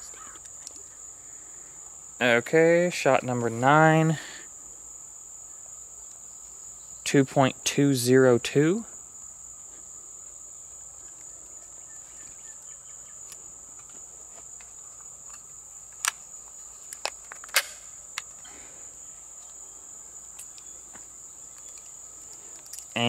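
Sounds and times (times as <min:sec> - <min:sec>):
insects chorus: 0:00.0 - 0:23.0
cartridges clicking into magazine: 0:16.9 - 0:18.4.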